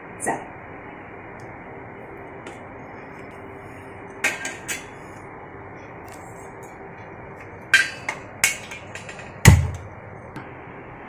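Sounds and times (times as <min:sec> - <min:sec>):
metal pot clanking on stove: 0:07.7 - 0:09.8.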